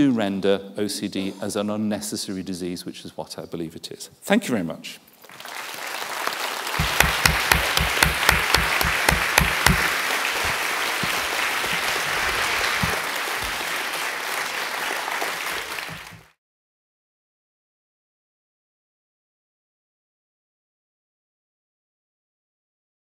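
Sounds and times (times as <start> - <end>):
audience applauding: 5.2 - 16.4
loud single claps: 6.7 - 14.5.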